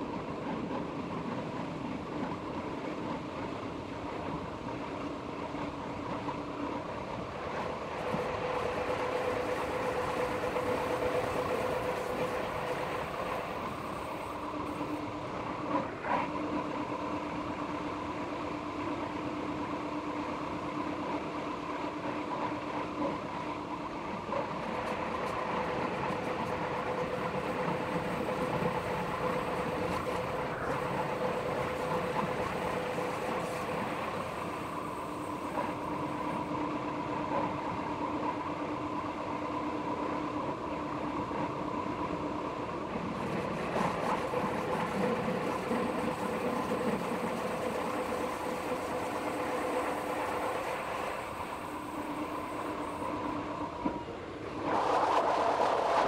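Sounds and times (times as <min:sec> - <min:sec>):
electric train rolling: 0:00.0 - 0:20.0, 0:20.8 - 0:56.0
train motor humming whine: 0:06.7 - 0:20.8, 0:23.6 - 0:37.8, 0:40.8 - 0:54.7.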